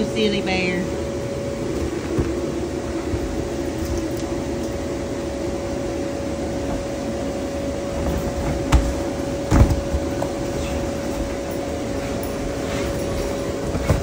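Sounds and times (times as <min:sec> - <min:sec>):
electric air blower drone: 0:00.0 - 0:14.0
dull thumps: 0:07.9 - 0:10.6.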